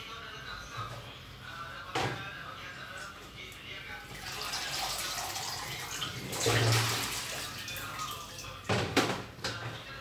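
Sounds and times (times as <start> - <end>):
water pouring into plastic basin: 4.1 - 8.5.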